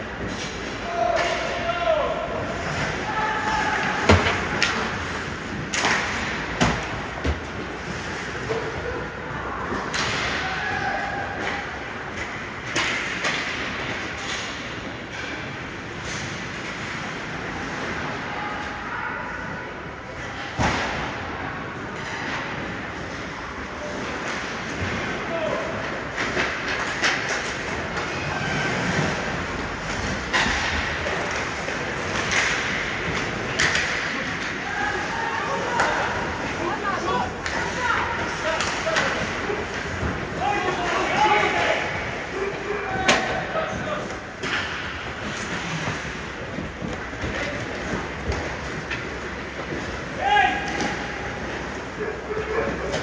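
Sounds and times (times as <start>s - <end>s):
skates scraping ice: 0.0s - 18.9s, 19.5s - 53.0s
hockey sticks and puck knocking: 2.7s - 8.6s, 11.3s - 17.1s, 25.9s - 51.8s.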